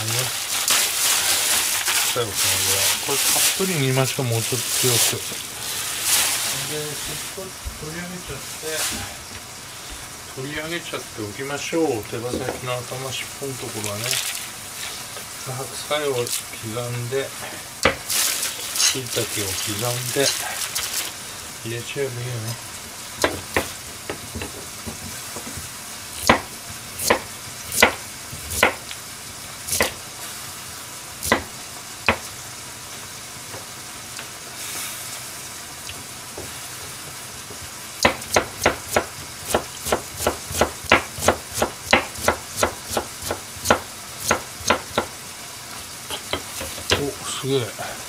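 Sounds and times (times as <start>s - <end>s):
pot hissing on stove: 0.0s - 48.0s
knife chopping carrot on board: 26.2s - 28.8s, 29.7s - 30.0s, 31.2s - 31.5s, 38.0s - 45.1s, 46.1s - 47.0s.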